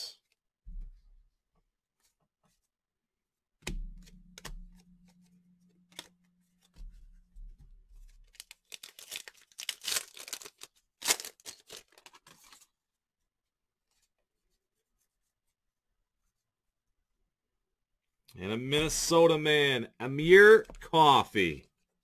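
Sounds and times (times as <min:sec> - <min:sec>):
foil wrapper tearing and crinkling: 0:08.2 - 0:12.7.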